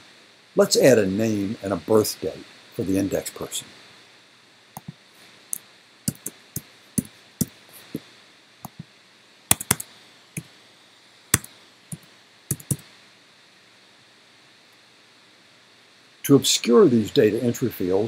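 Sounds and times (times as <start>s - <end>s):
computer keyboard typing: 6.1s - 6.3s, 9.5s - 9.8s, 11.4s - 12.8s.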